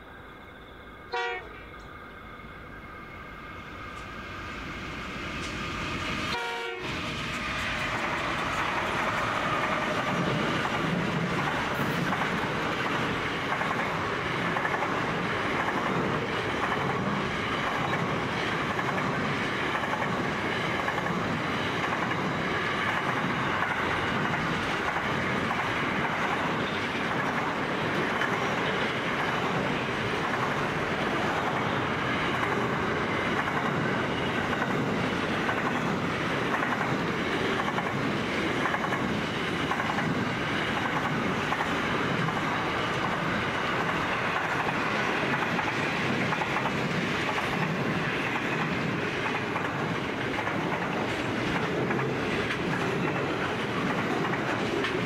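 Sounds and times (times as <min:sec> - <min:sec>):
locomotive horn blast: 0:01.1 - 0:01.6, 0:06.3 - 0:07.0
train wheels clattering over rail joints: 0:07.1 - 0:55.0.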